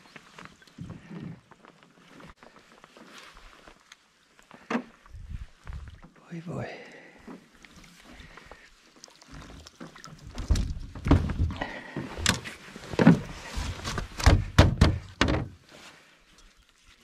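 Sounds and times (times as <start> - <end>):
knocks and thumps against boat hull: 10.4 - 13.3, 13.9 - 15.6.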